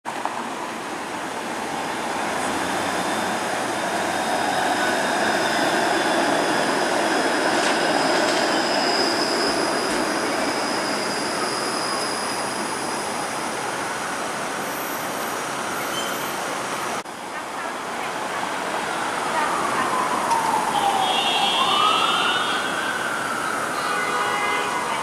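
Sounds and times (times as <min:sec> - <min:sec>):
streetcar wheels on rails: 0:00.0 - 0:25.0.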